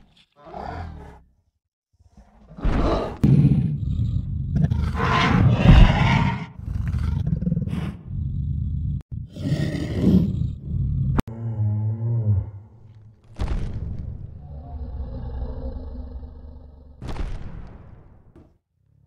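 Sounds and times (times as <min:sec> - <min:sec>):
gravelly dinosaur roars: 0:02.8 - 0:12.8, 0:14.4 - 0:17.0
deep steady pitched creature call: 0:03.8 - 0:12.8, 0:14.4 - 0:17.0.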